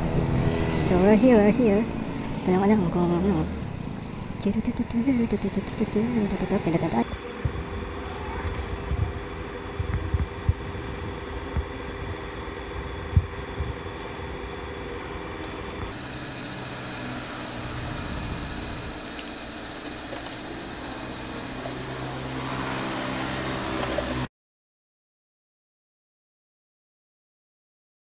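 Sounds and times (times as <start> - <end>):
motorcycle engine idling: 0.0 - 24.2.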